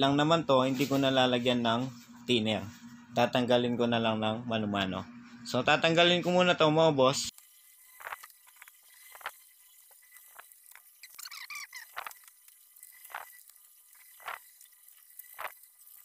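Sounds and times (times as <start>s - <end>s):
wavering squeak: 8.8s - 14.4s.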